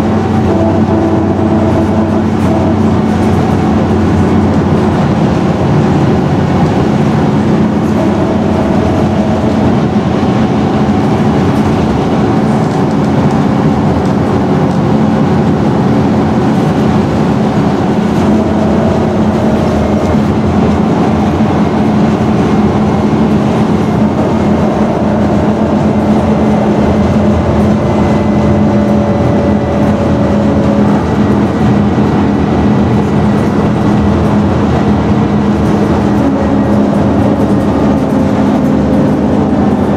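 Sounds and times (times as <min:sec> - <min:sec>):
bus body rumble: 0:00.0 - 0:39.9
diesel bus engine droning: 0:00.0 - 0:39.9.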